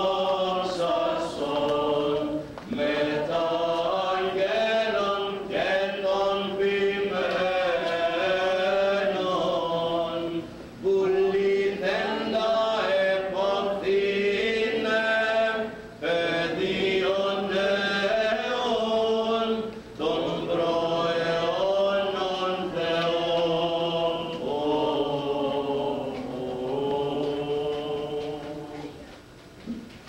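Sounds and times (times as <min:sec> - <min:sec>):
voices chanting a hymn: 0:00.0 - 0:29.1.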